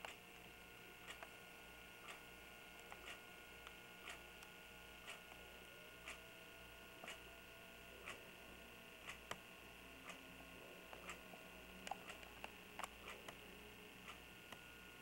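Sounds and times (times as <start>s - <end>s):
faint irregular clicks: 0.0s - 1.4s, 2.0s - 2.2s, 2.8s - 5.4s, 10.9s - 13.4s
faint steady hum: 0.0s - 15.0s.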